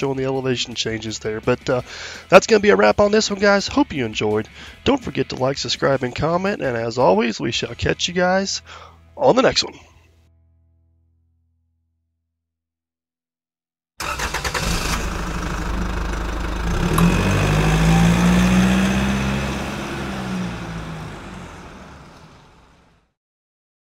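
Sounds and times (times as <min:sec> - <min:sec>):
engine cranking and revving: 0:14.0 - 0:23.0.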